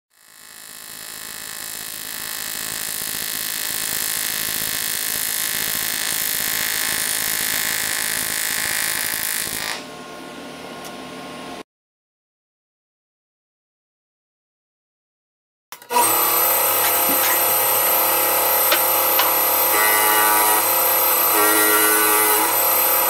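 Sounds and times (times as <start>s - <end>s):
welding arc buzzing hiss: 0.1s - 9.9s, 15.9s - 23.0s.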